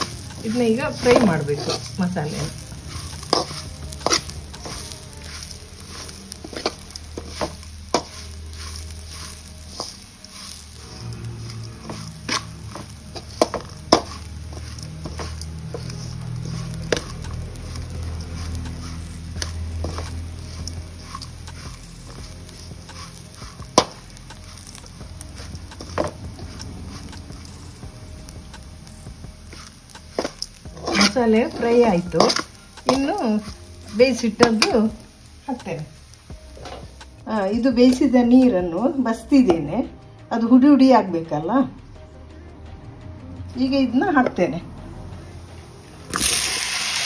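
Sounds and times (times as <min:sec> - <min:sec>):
steel spoon scraping a pan: 0:00.0 - 0:37.1.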